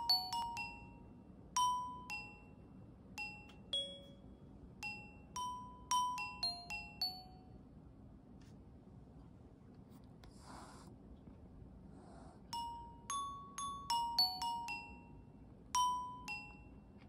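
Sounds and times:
glockenspiel-like bell melody: 0:00.0 - 0:07.6, 0:12.5 - 0:17.0.

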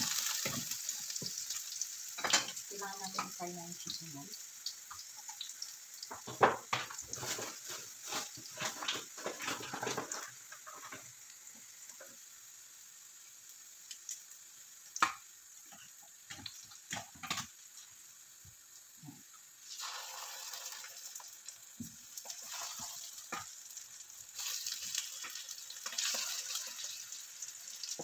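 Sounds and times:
garlic sizzling in hot oil: 0:00.0 - 0:28.0.

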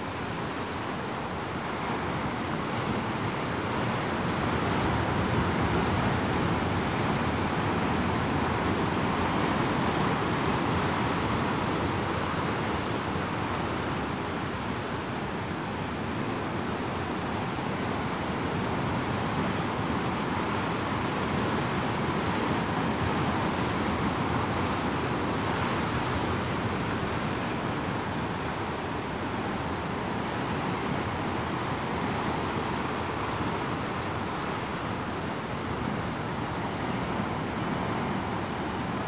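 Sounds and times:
surf crashing on rocky shore: 0:17.2 - 0:39.0.

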